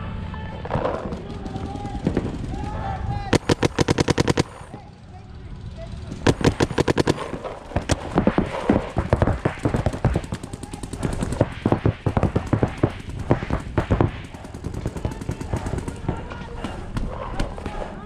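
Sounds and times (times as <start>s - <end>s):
paintball markers firing: 3.3s - 4.8s, 6.3s - 17.8s.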